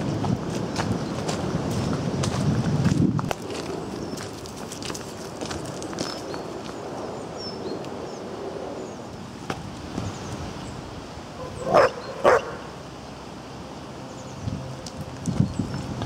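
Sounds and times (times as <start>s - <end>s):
dog barking: 11.4s - 12.7s.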